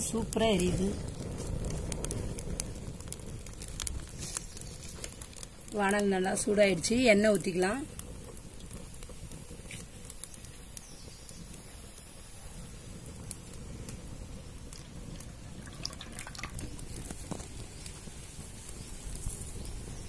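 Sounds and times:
wood fire crackling: 0.0s - 20.0s
oil pouring into a hot pan: 14.7s - 17.6s.

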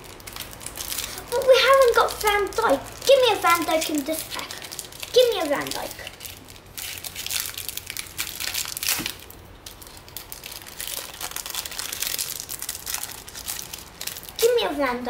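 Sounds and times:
plastic wrapper tearing and crinkling: 0.0s - 15.0s.

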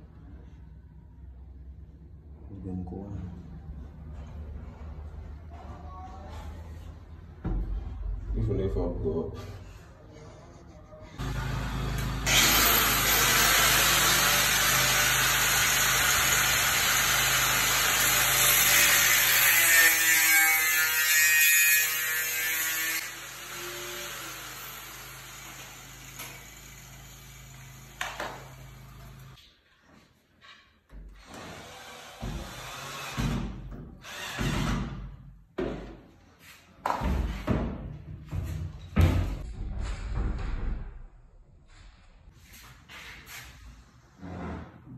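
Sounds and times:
angle grinder cutting metal pipe: 11.2s - 29.2s.

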